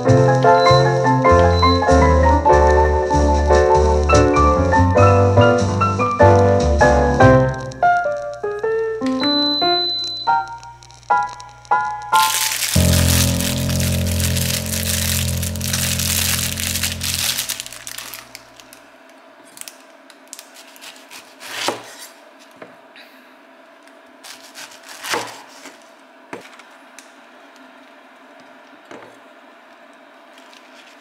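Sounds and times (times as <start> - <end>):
background music: 0.0 - 17.7.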